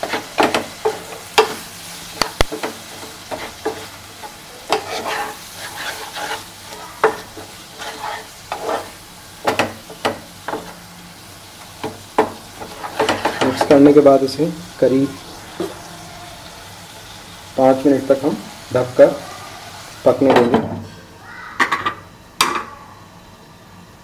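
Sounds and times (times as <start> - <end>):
spatula scraping a pan: 0.0 - 1.9, 2.5 - 10.8, 11.9 - 13.9
food sizzling in a pan: 0.0 - 24.0.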